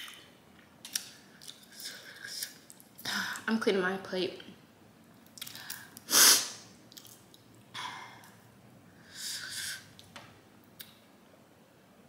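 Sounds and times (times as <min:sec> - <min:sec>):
woman sniffing: 0:06.1 - 0:06.6, 0:09.1 - 0:09.9.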